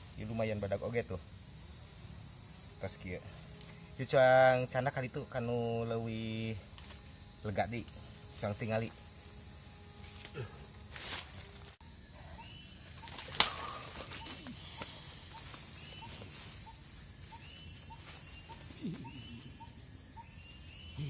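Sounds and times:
high insect whine: 0.0 - 21.0
bird chirping: 12.2 - 21.0.

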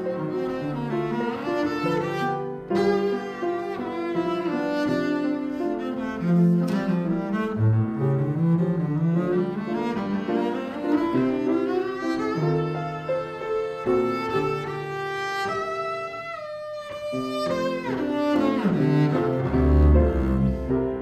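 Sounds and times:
bowed double bass: 0.0 - 13.0, 17.3 - 21.0
piano accompaniment: 0.0 - 21.0.

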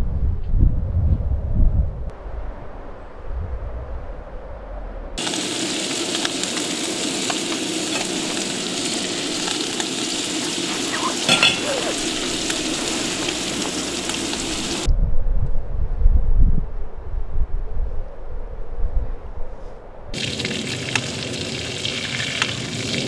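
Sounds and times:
wind rumbling on microphone: 0.0 - 5.2, 8.2 - 20.3
food sizzling in a pan: 5.2 - 14.9
sharp metallic clink: 11.3 - 11.8.

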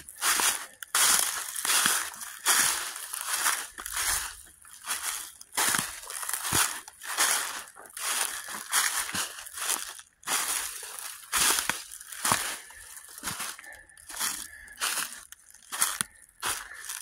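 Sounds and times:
footsteps crunching dry leaves: 0.0 - 17.0.

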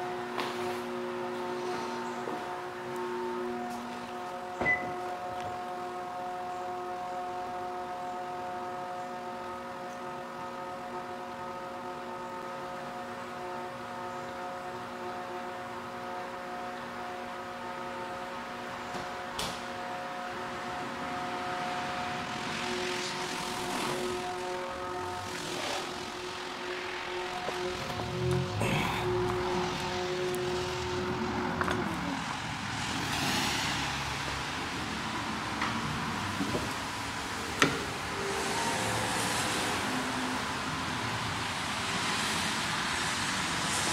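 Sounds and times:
small electric motor whining: 21.3 - 32.6.

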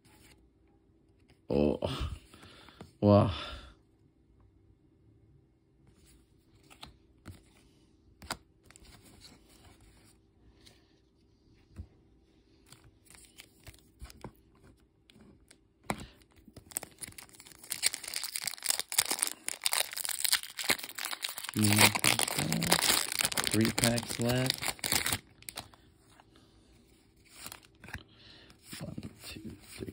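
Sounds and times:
foil wrapper crinkling and tearing: 16.0 - 25.8, 27.2 - 28.0.

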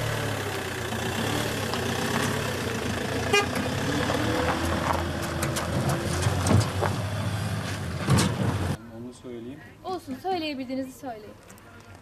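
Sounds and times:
truck engine running: 0.0 - 8.8.

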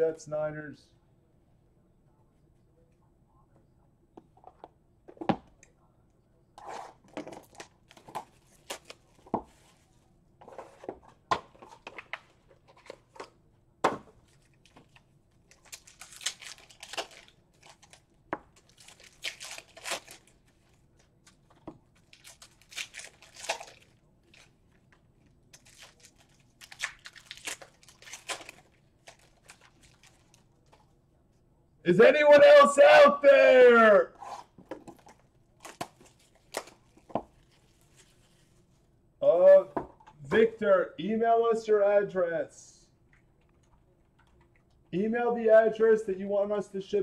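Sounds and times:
pack wrappers tearing and crinkling: 15.5 - 20.7, 22.0 - 24.6, 25.5 - 30.8.

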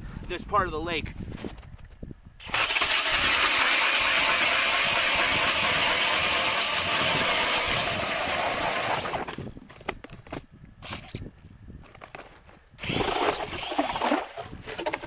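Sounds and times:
drill driving ice auger: 2.4 - 9.4, 12.8 - 15.0.

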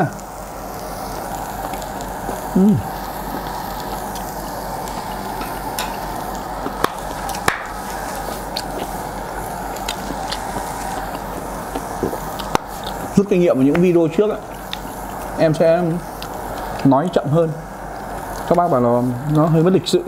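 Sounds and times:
shrimp sizzling on a grill: 0.0 - 20.0
person humming mm: 2.3 - 3.1.

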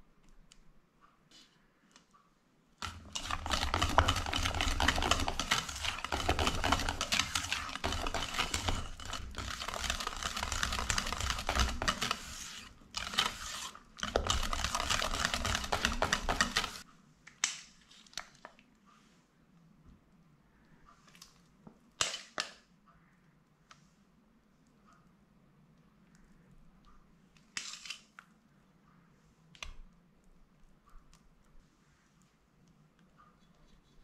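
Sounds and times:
whisk beating batter in metal bowl: 2.8 - 16.8.

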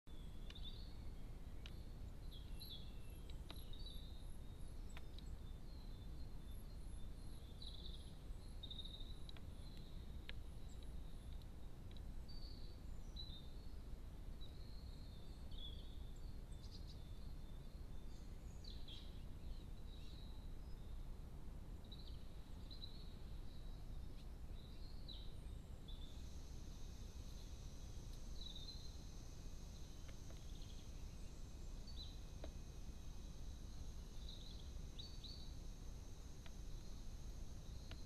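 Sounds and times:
birds chirping and warbling: 0.1 - 38.0
low outdoor rumble: 0.1 - 38.0
faint clicks: 1.6 - 1.8, 3.2 - 3.7, 4.9 - 5.4, 9.1 - 12.1, 30.0 - 30.8, 36.4 - 36.8.

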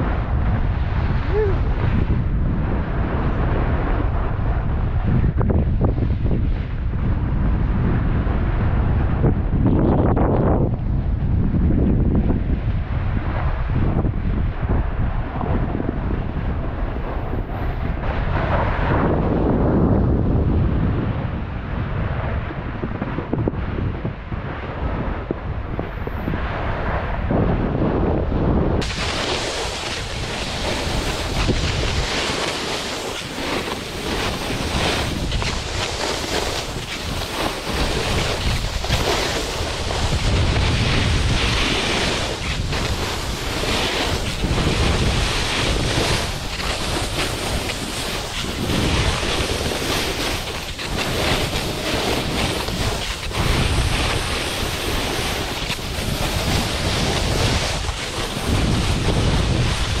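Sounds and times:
snowboard scraping over snow: 0.0 - 9.3, 12.9 - 21.1, 24.6 - 60.0
wind on microphone: 0.0 - 60.0.

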